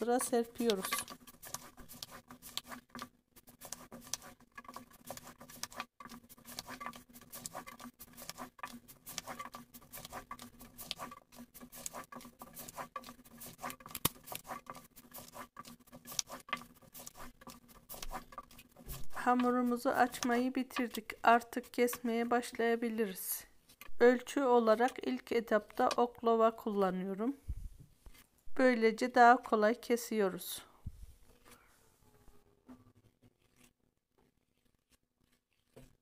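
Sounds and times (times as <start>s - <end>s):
rolling pin working dough: 0.0s - 22.3s.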